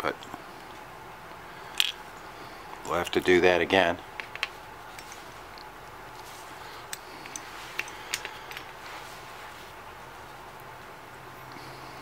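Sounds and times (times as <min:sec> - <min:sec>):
faint steady hiss: 0:00.0 - 0:12.0
small parts clicking and tapping: 0:01.7 - 0:02.0, 0:04.1 - 0:08.8.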